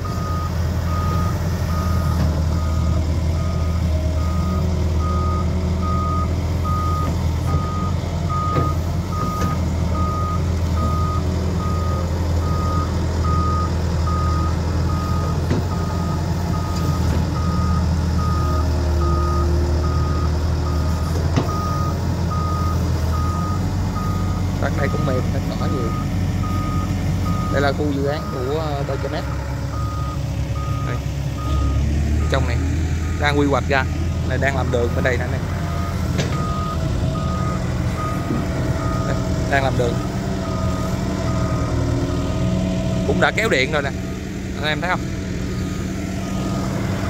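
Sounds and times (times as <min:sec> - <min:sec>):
warning alarm beeping: 0:00.0 - 0:33.8, 0:34.4 - 0:42.0
diesel engine running: 0:00.0 - 0:47.0.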